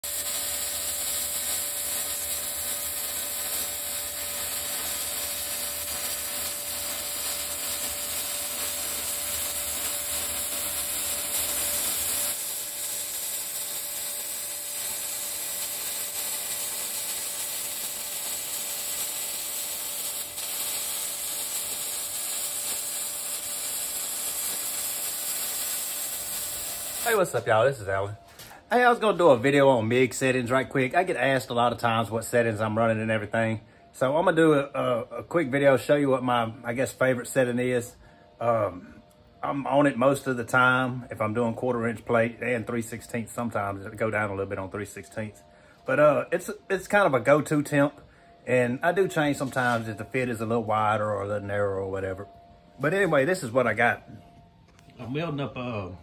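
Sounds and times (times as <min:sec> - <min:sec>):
welding arc crackling: 0:00.0 - 0:27.9.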